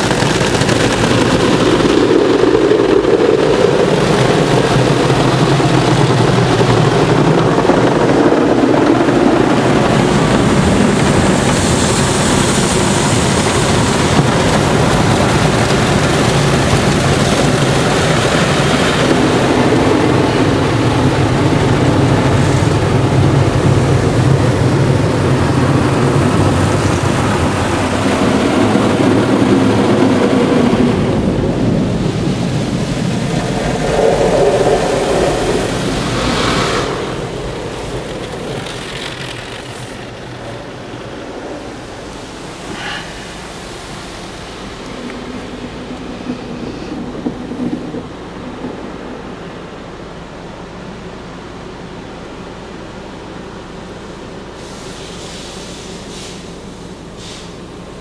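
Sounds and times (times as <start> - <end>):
water spraying on car: 0.0 - 58.0
car wash brushes scrubbing: 31.5 - 47.6.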